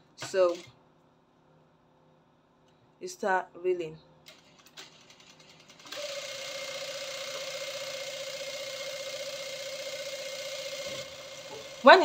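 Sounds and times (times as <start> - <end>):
sewing machine whirring: 0.1 - 0.7, 4.3 - 12.0.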